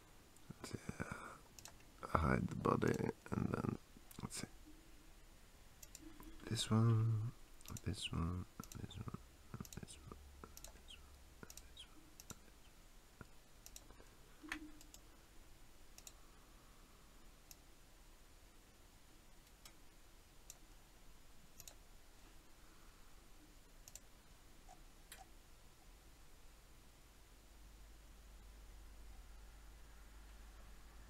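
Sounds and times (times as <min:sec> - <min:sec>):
faint computer mouse clicks: 0:01.6 - 0:01.9, 0:05.8 - 0:06.3, 0:09.6 - 0:12.5, 0:13.6 - 0:15.0, 0:16.0 - 0:16.2, 0:21.6 - 0:21.8, 0:23.8 - 0:24.1.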